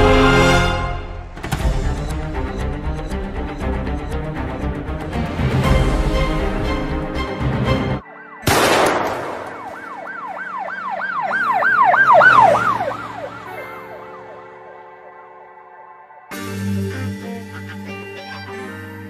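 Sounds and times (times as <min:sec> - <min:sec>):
music: 0:00.0 - 0:11.8, 0:12.7 - 0:19.0
siren yelping: 0:09.5 - 0:16.2.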